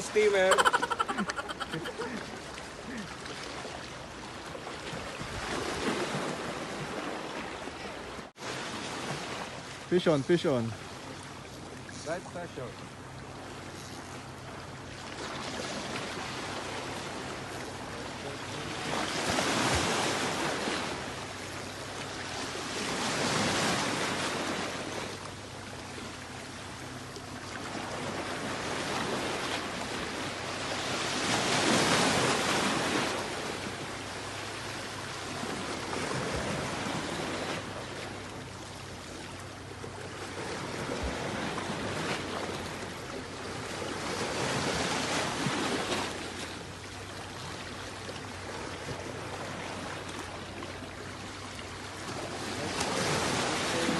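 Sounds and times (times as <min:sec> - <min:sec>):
waves washing over rocks: 0:00.0 - 0:03.7, 0:27.7 - 0:38.0, 0:51.9 - 0:53.9.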